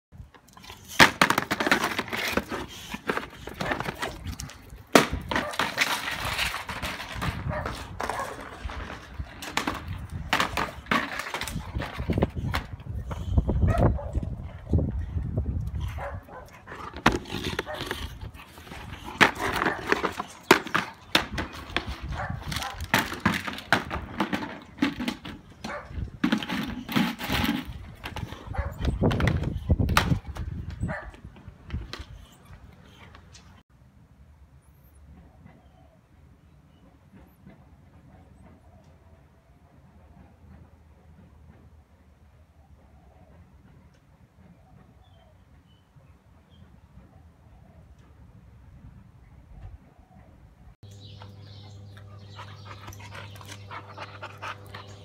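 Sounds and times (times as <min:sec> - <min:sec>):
dog claws scuffing bricks: 0:00.5 - 0:13.4, 0:16.3 - 0:30.6
plastic pot scraping on bricks: 0:16.7 - 0:30.2.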